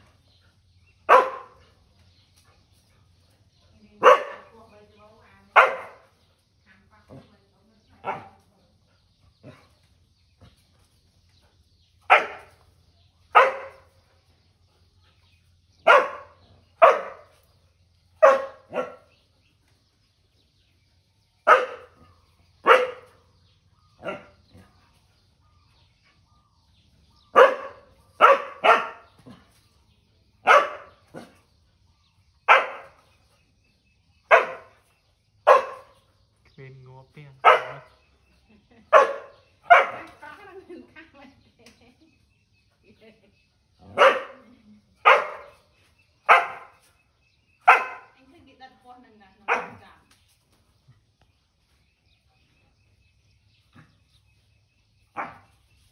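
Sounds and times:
dog barking: 0:01.1 - 0:01.6, 0:04.0 - 0:04.6, 0:05.5 - 0:06.1, 0:08.0 - 0:08.4, 0:12.1 - 0:12.6, 0:13.3 - 0:13.9, 0:15.8 - 0:17.4, 0:18.2 - 0:19.2, 0:21.4 - 0:23.2, 0:24.0 - 0:24.4, 0:27.3 - 0:29.4, 0:30.4 - 0:31.4, 0:32.5 - 0:33.0, 0:34.3 - 0:34.8, 0:35.4 - 0:36.0, 0:37.4 - 0:38.0, 0:38.9 - 0:40.2, 0:43.8 - 0:46.9, 0:47.6 - 0:48.2, 0:49.4 - 0:49.9, 0:55.2 - 0:55.5.

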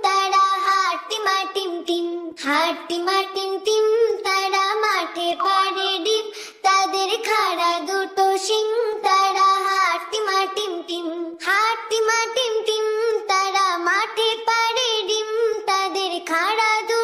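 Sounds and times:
high child-like voice singing: 0:00.0 - 0:17.0.

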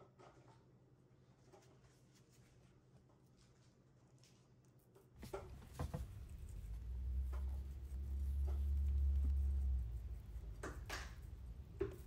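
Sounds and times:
low rumble: 0:05.3 - 0:12.0.

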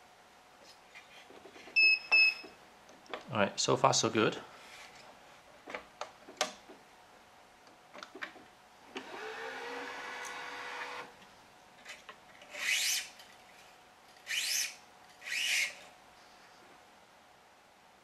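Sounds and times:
string zipping through racket: 0:12.5 - 0:13.2.

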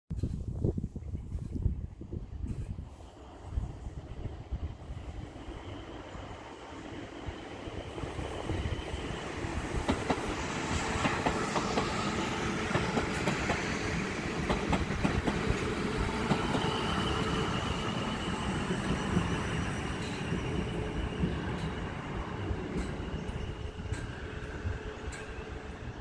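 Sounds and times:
train running rumble: 0:02.2 - 0:26.0
train wheels clicking over rail joints: 0:09.6 - 0:17.4, 0:18.8 - 0:25.6.

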